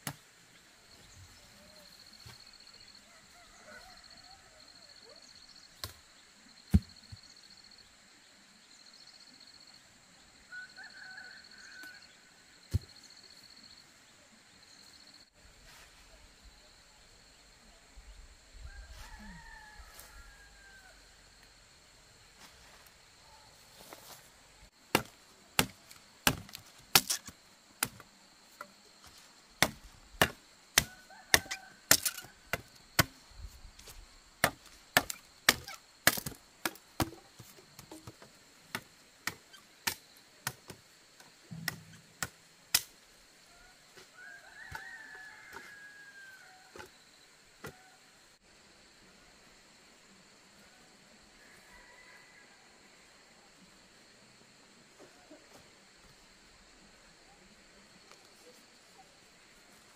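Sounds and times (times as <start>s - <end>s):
blade chopping: 24.9s - 28.0s, 29.6s - 33.2s.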